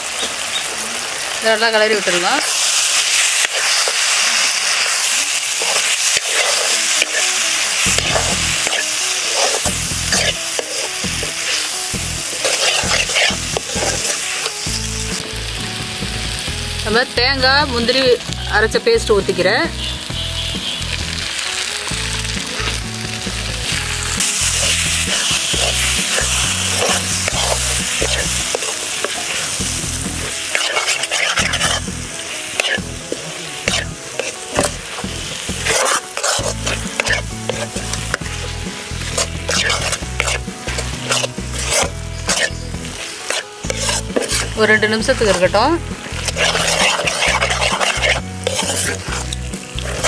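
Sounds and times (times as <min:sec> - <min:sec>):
paste sizzling in a pan: 0:00.0 - 0:50.0
steel ladle scraping a pan: 0:02.0 - 0:14.7, 0:24.0 - 0:50.0.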